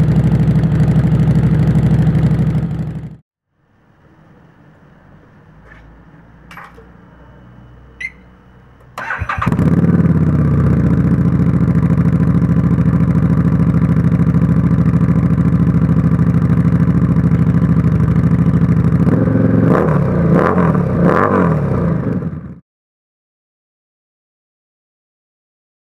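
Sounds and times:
motorcycle engine idling and revving: 0:00.0 - 0:03.2, 0:05.5 - 0:22.6.

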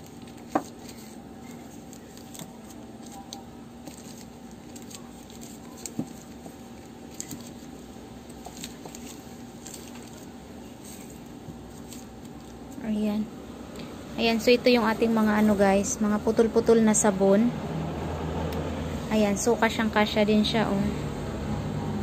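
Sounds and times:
paper-wrapped soap bars rustling: 0:00.0 - 0:12.8
steady faint hum: 0:00.0 - 0:22.0.

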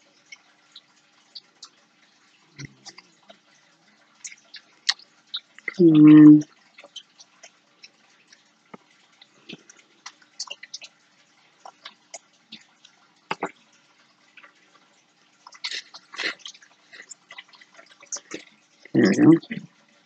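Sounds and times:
small clicks and ticks: 0:00.0 - 0:05.8, 0:06.4 - 0:20.0.

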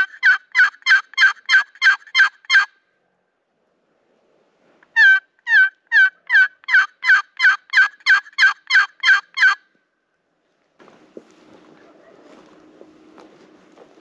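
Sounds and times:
turkey yelps: 0:00.0 - 0:02.8, 0:04.9 - 0:09.6.

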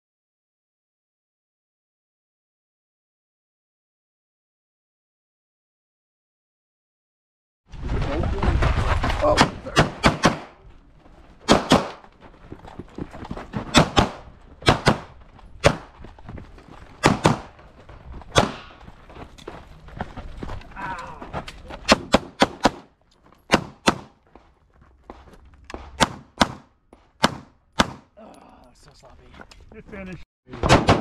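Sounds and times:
pistol shots: 0:09.4 - 0:10.6, 0:11.4 - 0:12.0, 0:13.7 - 0:15.9, 0:17.0 - 0:17.6, 0:18.3 - 0:18.8, 0:21.9 - 0:22.9, 0:23.5 - 0:24.1, 0:26.0 - 0:28.1, 0:30.6 - 0:31.0.

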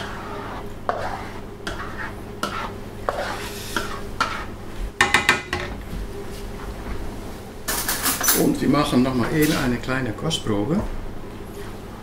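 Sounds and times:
spatula scraping a wok: 0:00.0 - 0:04.6.

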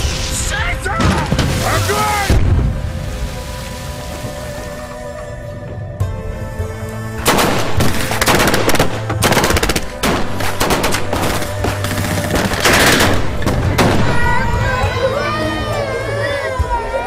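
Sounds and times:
submachine gun fire: 0:07.2 - 0:14.0.

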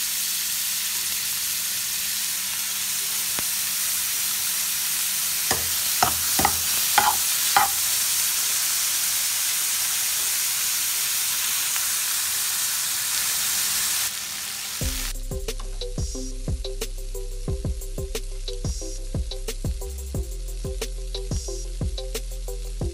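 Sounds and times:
shrimp sizzling in butter: 0:00.0 - 0:15.1
utensil knocking against pan: 0:05.5 - 0:07.8.

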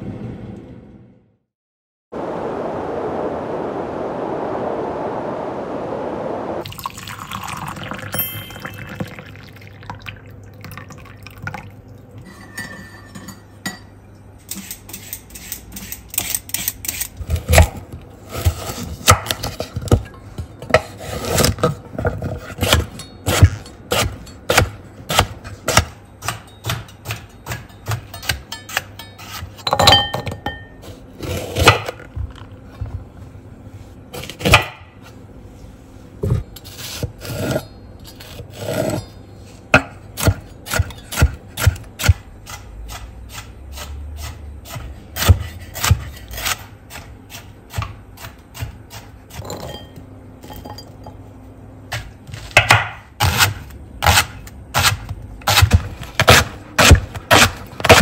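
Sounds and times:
knife chopping on wooden board: 0:39.8 - 0:49.2, 0:52.6 - 0:58.0.

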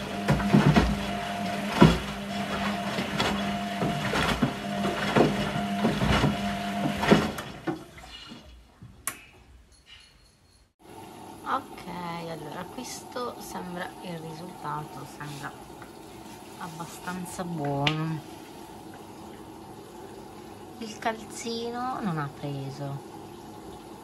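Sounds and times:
clothes and water sloshing in drum: 0:00.0 - 0:09.0, 0:14.6 - 0:22.3
washing machine motor hum: 0:00.0 - 0:09.3, 0:10.8 - 0:24.0.

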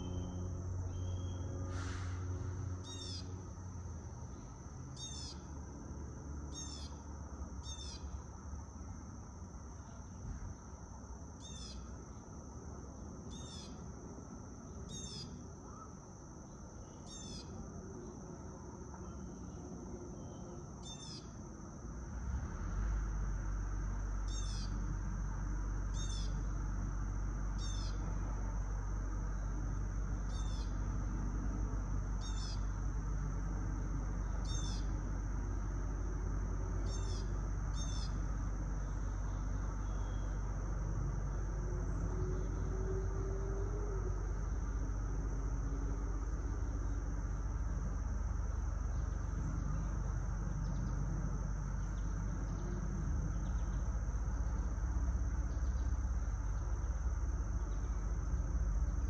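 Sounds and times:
bird chirping: 0:00.0 - 0:01.5, 0:32.2 - 0:32.7, 0:34.4 - 0:34.9, 0:36.9 - 0:38.2
distant traffic: 0:00.0 - 0:59.0
high insect drone: 0:00.0 - 0:59.0
wind: 0:00.0 - 0:59.0.

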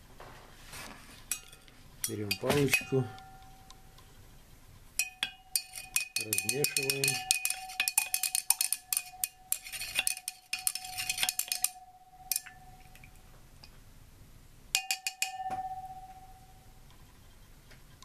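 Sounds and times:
stirring rod clinking against glass: 0:01.3 - 0:03.8, 0:05.0 - 0:13.2, 0:14.8 - 0:16.6
glass beaker ringing: 0:01.3 - 0:04.0, 0:05.0 - 0:13.2, 0:14.8 - 0:16.8.

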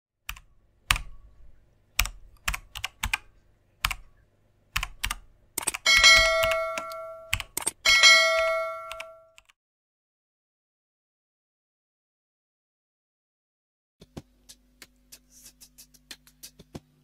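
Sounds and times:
keyboard key clicks: 0:02.0 - 0:04.0, 0:04.8 - 0:07.8, 0:08.8 - 0:09.5
bright bell chimes: 0:05.9 - 0:09.3.

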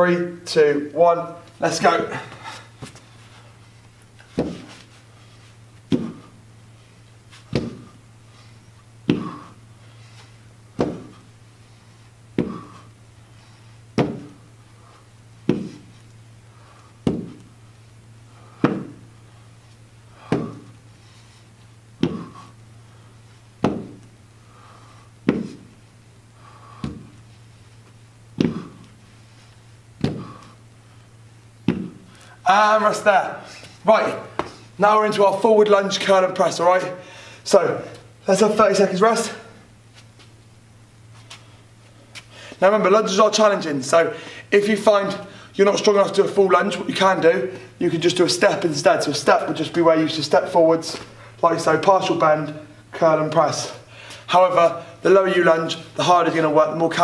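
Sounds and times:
steady low hum: 0:00.0 - 0:57.0
dumbbells knocking on hard floor: 0:31.6 - 0:32.0.

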